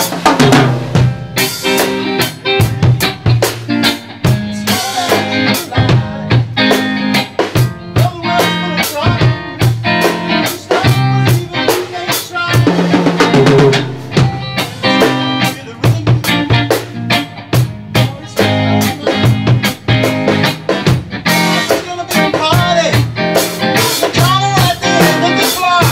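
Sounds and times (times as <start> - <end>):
rock band playing: 0.0 - 25.9
guitar note run: 12.6 - 17.8.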